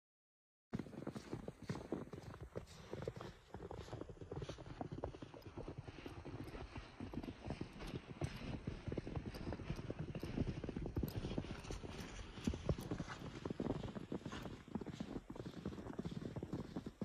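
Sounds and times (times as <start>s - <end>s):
boots crunching through snow: 0.8s - 5.0s.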